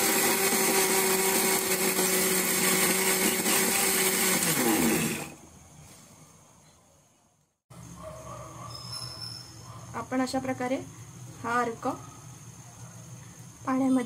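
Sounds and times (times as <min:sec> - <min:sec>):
mixer-grinder motor whine: 0:00.0 - 0:05.4.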